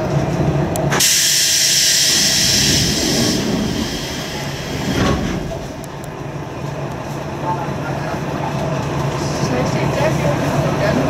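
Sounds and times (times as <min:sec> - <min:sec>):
diesel engine low rumble: 0:00.0 - 0:11.0
compressed-air hiss: 0:01.0 - 0:05.3.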